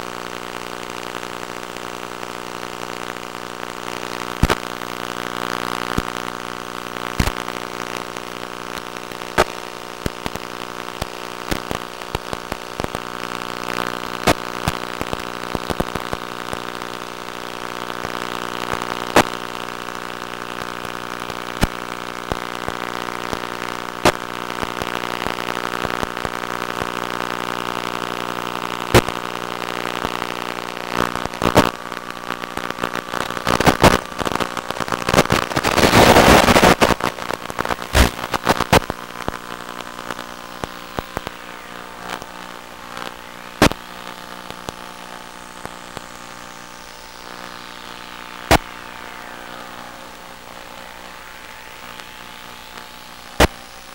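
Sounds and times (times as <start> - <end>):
steady buzz: 0.0 - 53.9
sharp pops and crackles: 1.8 - 17.0, 17.6 - 27.1, 28.3 - 50.2, 51.8 - 53.9
loud rush of noise: 35.4 - 45.4, 46.5 - 53.9.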